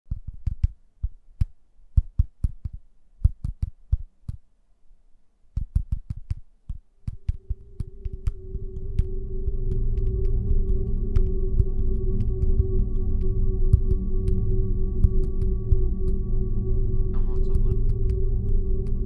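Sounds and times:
low thumps with sharp clicks: 5.5s - 19.0s
ambient music held tone: 7.0s - 19.0s.

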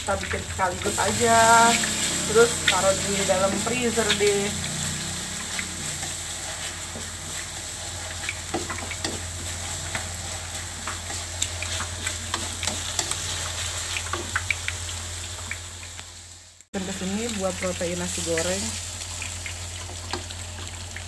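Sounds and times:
paste sizzling in hot oil: 0.0s - 21.0s
wooden spatula scraping wok: 1.1s - 14.3s.

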